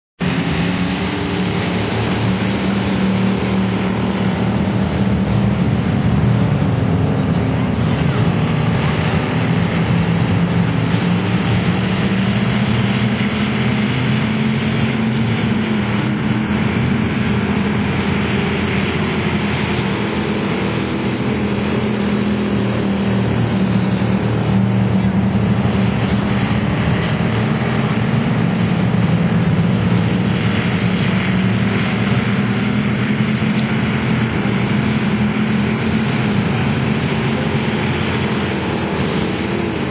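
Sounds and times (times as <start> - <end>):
racing car engines: 0.2 - 39.9.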